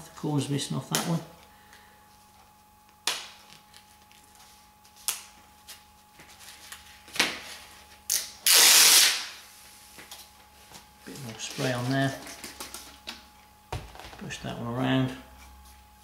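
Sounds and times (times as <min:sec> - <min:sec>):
loud hiss: 0:08.5 - 0:09.3.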